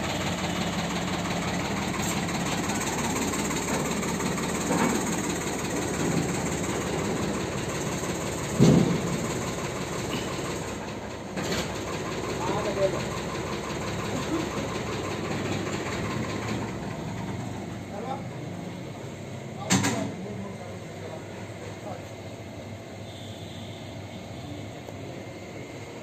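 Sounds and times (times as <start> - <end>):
engine idling: 0.0 - 19.6
loud thump: 8.6 - 9.1.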